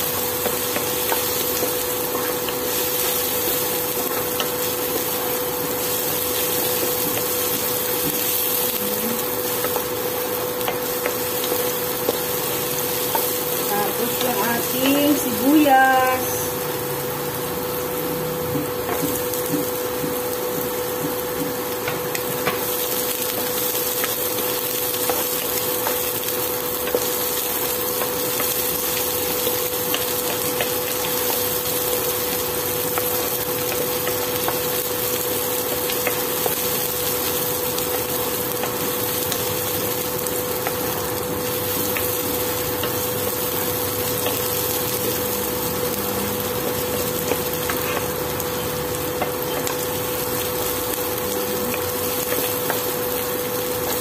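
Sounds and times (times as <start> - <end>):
cooktop hum: 0.0 - 54.0
food sizzling in oil: 0.0 - 54.0
wooden spoon knocking on pan: 18.5 - 22.7.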